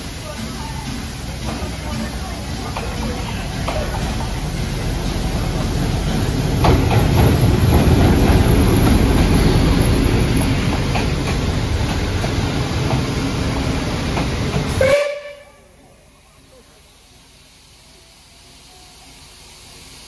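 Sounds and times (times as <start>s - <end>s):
train wheels rumbling on rails: 0.0s - 20.0s
sharp rail clacks: 0.4s - 13.3s.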